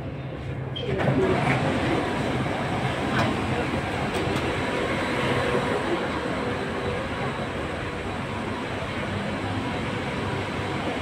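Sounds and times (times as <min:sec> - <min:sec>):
subway train humming: 0:00.0 - 0:11.0.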